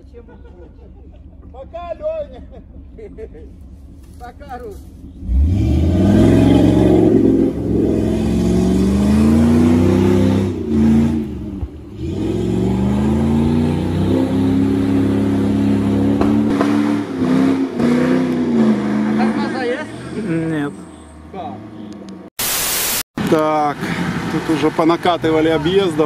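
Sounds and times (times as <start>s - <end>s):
car engine revving in mud: 5.0s - 22.3s, 23.5s - 26.0s.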